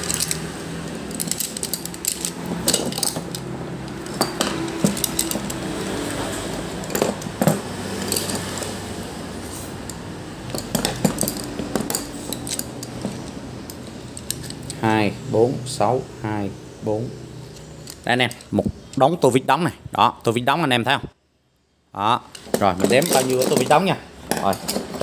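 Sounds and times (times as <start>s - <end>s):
metal screwdrivers clinking: 0.0s - 8.8s, 9.6s - 14.8s, 17.4s - 19.0s, 22.3s - 25.0s.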